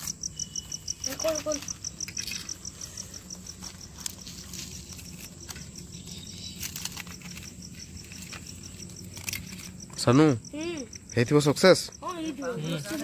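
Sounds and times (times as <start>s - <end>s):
crickets chirping: 0.0s - 13.0s
dry leaf wrapping crackling: 1.0s - 10.1s.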